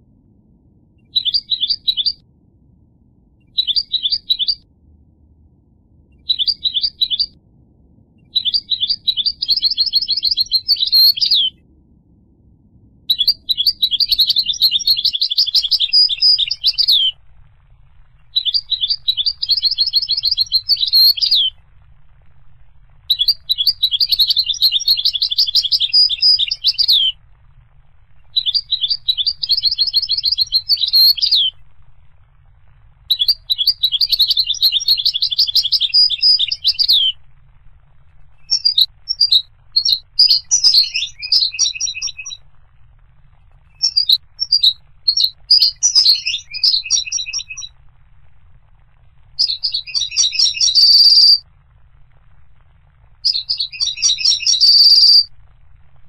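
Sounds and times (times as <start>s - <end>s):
goldfinch twittering song: 1.1s - 2.2s, 3.5s - 4.6s, 6.2s - 7.3s, 8.3s - 11.5s, 13.1s - 17.2s, 18.3s - 21.5s, 23.1s - 27.2s, 28.2s - 31.6s, 33.1s - 37.2s, 38.5s - 42.4s, 43.8s - 47.7s, 49.4s - 51.4s, 53.3s - 55.3s.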